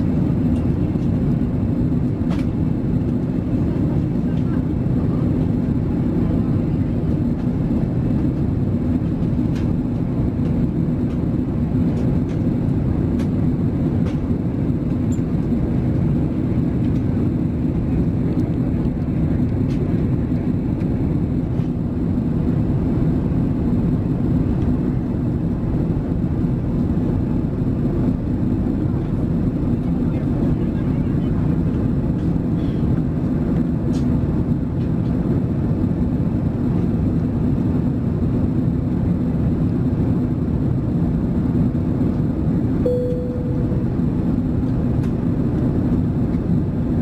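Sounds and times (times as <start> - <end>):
aircraft cabin engine drone: 0.0 - 47.0.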